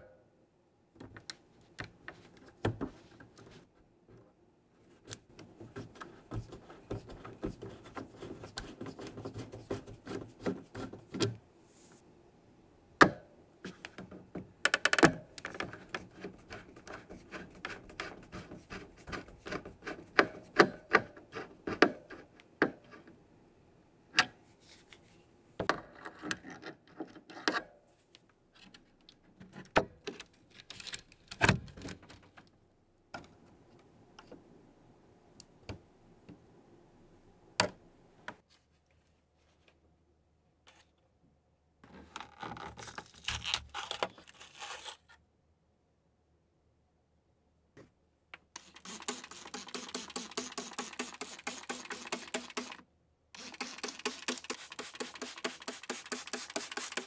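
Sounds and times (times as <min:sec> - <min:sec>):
screwdriver metal clicks and scrapes: 0:48.6 - 0:52.8, 0:53.4 - 0:57.0.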